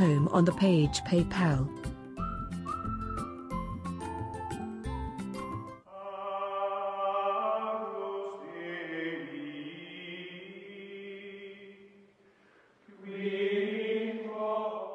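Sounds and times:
choral chant: 5.9s - 12.0s, 12.9s - 14.9s.

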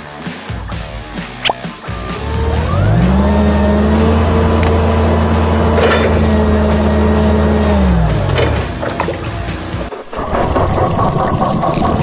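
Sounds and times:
toy crane electric motor running: 1.9s - 8.2s.

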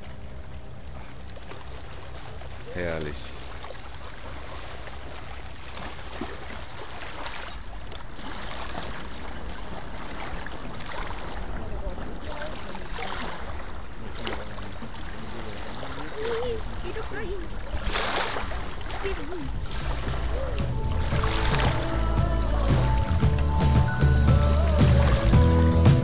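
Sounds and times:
waves lapping on pebbles: 0.0s - 25.4s
wind rumble on microphone: 16.4s - 25.4s.

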